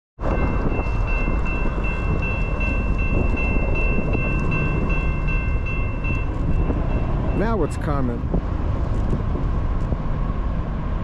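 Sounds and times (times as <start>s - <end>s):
crossing warning bell ringing: 0.2s - 8.3s.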